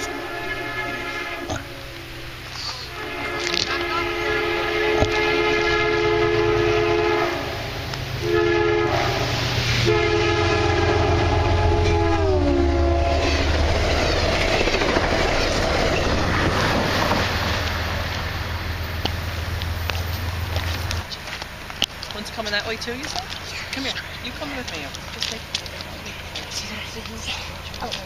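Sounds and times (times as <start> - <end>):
locomotive horn blasts: 0.0 - 13.6
train cars rumbling on rails: 0.0 - 28.0.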